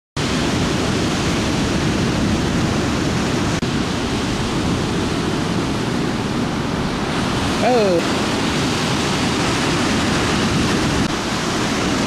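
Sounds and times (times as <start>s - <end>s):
ocean surf breaking: 0.2s - 12.0s.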